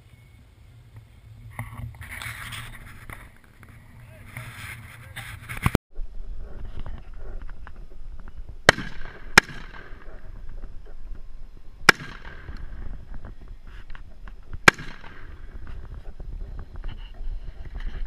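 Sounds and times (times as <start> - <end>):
rifle gunshots: 8.6 - 10.3, 11.9 - 12.8, 14.6 - 15.3.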